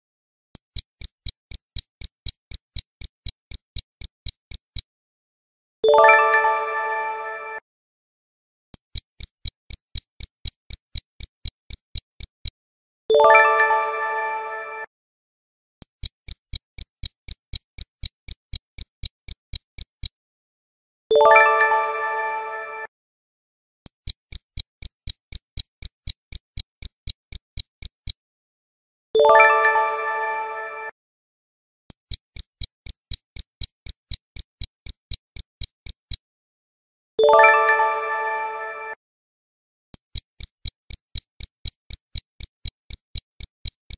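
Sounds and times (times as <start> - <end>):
stopwatch ticking: 0.6 - 4.9, 8.8 - 12.6, 15.8 - 20.2, 23.9 - 28.2, 31.9 - 36.2, 40.0 - 43.9.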